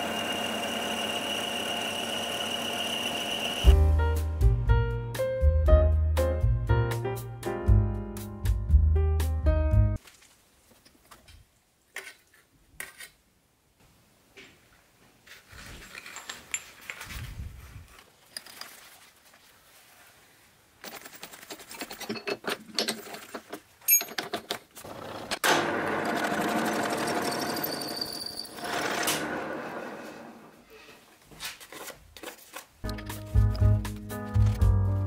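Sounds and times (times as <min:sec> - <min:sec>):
milling machine running: 0:00.0 - 0:03.7
metal parts clicking and knocking: 0:20.8 - 0:25.4.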